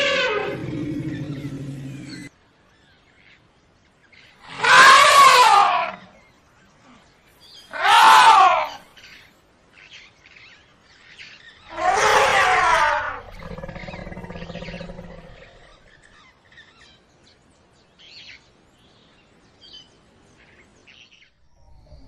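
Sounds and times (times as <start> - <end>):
elephant trumpeting and roaring: 0.0 - 2.3, 4.4 - 6.0, 7.7 - 8.8, 11.7 - 15.9.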